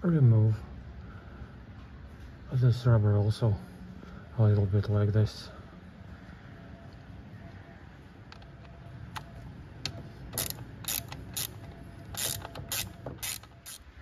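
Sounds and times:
socket ratchet clicking: 10.3s - 13.9s.

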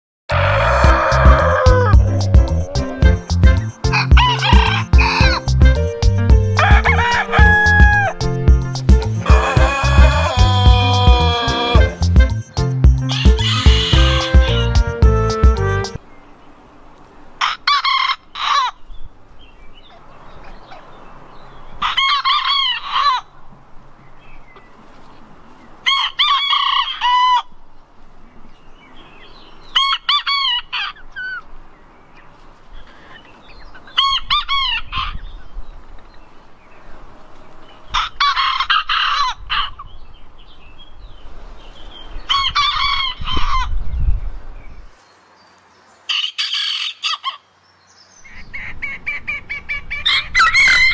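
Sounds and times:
roosters crowing: 0.3s - 12.3s, 13.0s - 16.0s, 17.4s - 18.8s, 21.7s - 23.4s, 25.8s - 27.6s, 29.6s - 31.4s, 33.8s - 35.3s, 37.0s - 39.9s, 42.2s - 43.8s, 46.0s - 47.5s, 48.3s - 50.9s.

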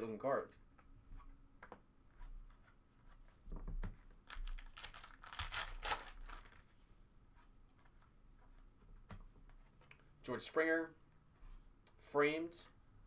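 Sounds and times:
foil wrapper tearing and crinkling: 4.2s - 6.6s.

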